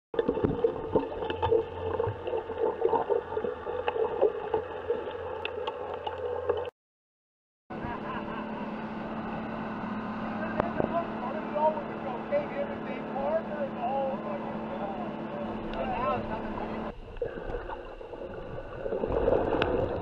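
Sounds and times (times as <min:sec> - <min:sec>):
motorboat engine hum: 0:00.2 - 0:06.7, 0:07.7 - 0:20.0
muffled underwater rumble: 0:00.2 - 0:06.7, 0:07.7 - 0:20.0
underwater clicks and bubbling: 0:00.2 - 0:06.7, 0:16.9 - 0:20.0
boat wake rushing: 0:07.7 - 0:20.0.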